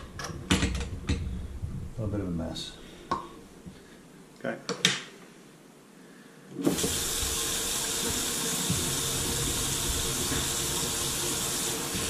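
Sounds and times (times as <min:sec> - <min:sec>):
faucet turned on: 0:06.6 - 0:12.0
water running into sink: 0:06.6 - 0:12.0.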